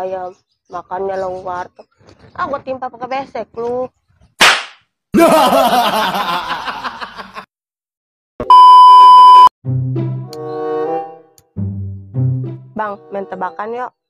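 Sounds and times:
short swish: 0:04.4 - 0:04.8
high test-tone beep: 0:08.4 - 0:09.5
music: 0:09.6 - 0:14.0.

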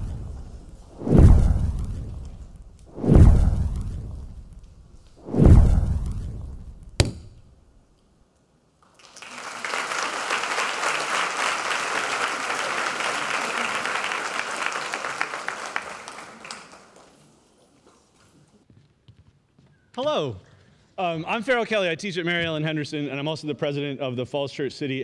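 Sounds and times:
deep boom: 0:00.0 - 0:07.6
sharp hit: 0:00.0 - 0:07.6
audience applauding: 0:08.8 - 0:17.2.

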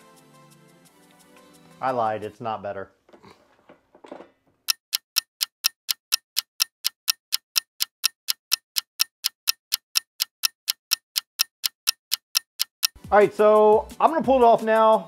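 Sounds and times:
clock ticking: 0:04.7 - 0:13.0.

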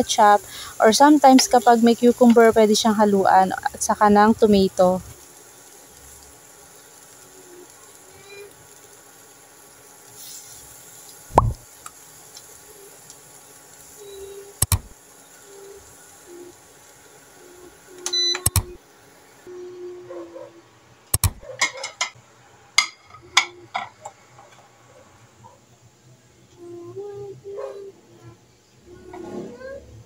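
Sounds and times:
cooktop control panel beeps: 0:14.0 - 0:14.9, 0:17.9 - 0:18.8.

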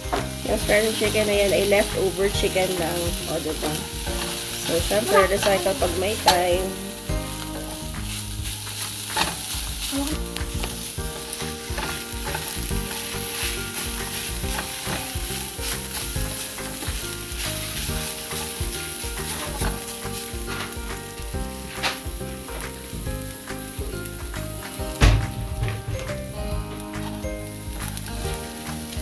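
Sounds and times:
utensil scraping a pan: 0:00.0 - 0:22.8
chicken sizzling in hot oil: 0:00.0 - 0:29.0.

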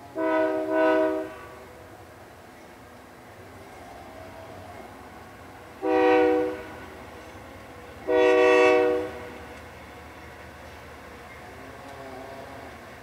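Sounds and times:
locomotive air horn blasts: 0:00.2 - 0:01.7, 0:05.8 - 0:06.8, 0:08.0 - 0:09.4.

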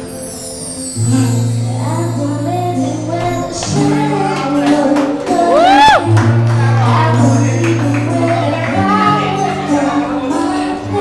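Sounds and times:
strummed acoustic guitar: 0:00.0 - 0:11.0
people singing a duet: 0:02.8 - 0:06.1, 0:06.8 - 0:11.0
hand claps: 0:03.6 - 0:08.8.

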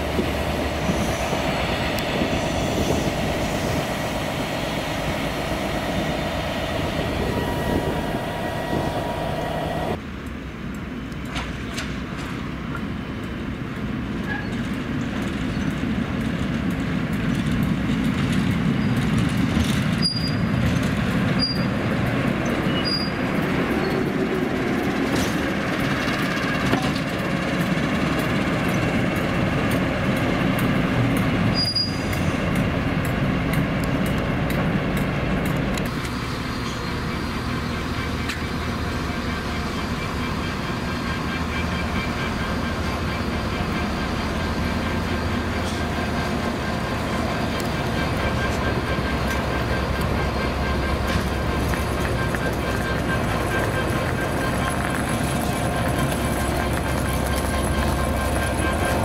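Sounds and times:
train rumbling on rails: 0:00.0 - 0:59.0
wheels squeaking: 0:18.7 - 0:21.8, 0:22.4 - 0:27.1, 0:31.4 - 0:32.4, 0:35.9 - 0:59.0.

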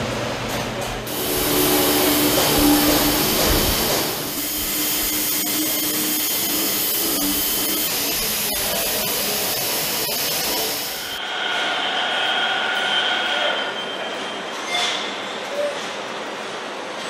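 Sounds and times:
pneumatic air tool hissing: 0:01.1 - 0:11.2.

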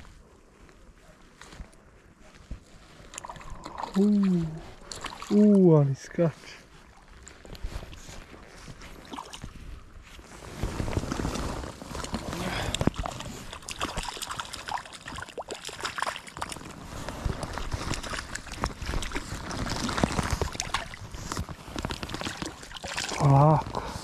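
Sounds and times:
fish splashing in water: 0:12.0 - 0:23.3.

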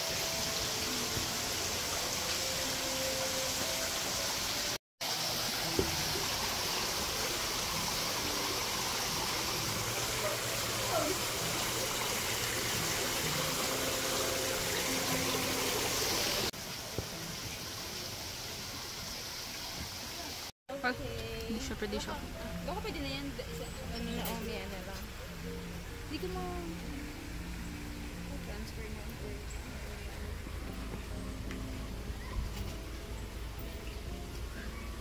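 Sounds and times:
water rushing: 0:00.0 - 0:20.5.

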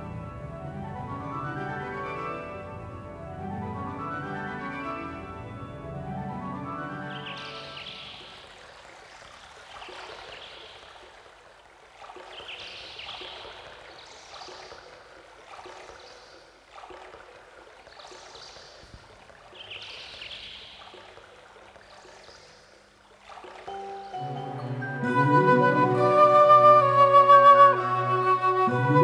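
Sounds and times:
faint music: 0:00.0 - 0:10.6, 0:18.0 - 0:29.0
flowing water hiss: 0:06.7 - 0:25.1.

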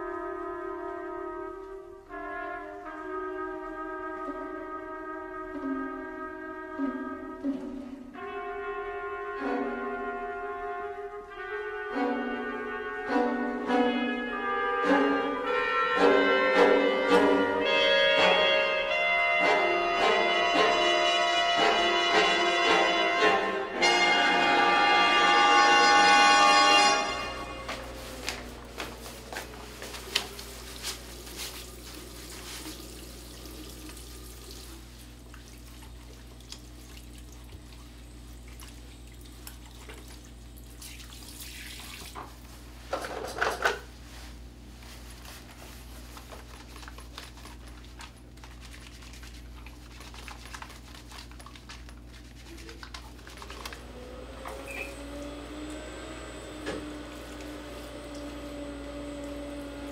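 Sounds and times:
tap water running into washbasin: 0:29.8 - 0:43.8, 0:56.6 - 0:59.9
small water splashes: 0:31.4 - 0:42.3.

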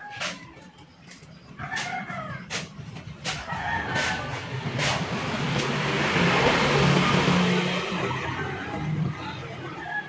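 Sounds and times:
rooster crowing: 0:00.0 - 0:00.8, 0:01.6 - 0:02.5, 0:03.4 - 0:04.6, 0:08.0 - 0:10.0.

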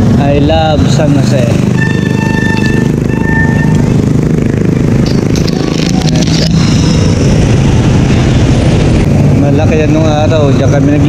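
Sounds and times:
loud low rumble: 0:00.0 - 0:11.0
motorcycle and car traffic: 0:00.0 - 0:11.0
steady high tone: 0:01.7 - 0:09.2.

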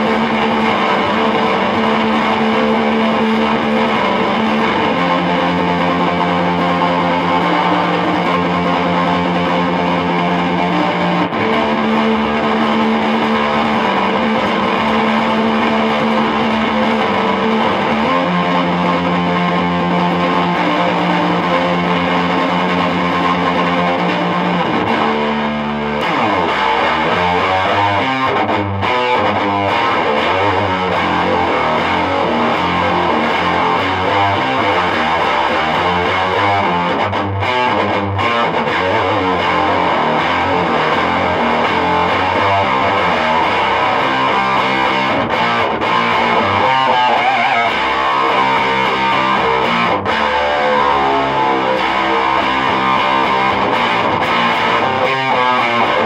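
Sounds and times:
electric guitar chords and riffs: 0:00.0 - 0:56.0.

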